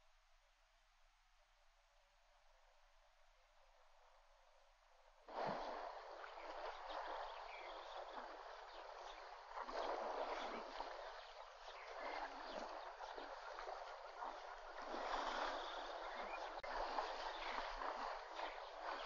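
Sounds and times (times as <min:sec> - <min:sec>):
water splashing and sloshing: 0:05.3 - 0:19.0.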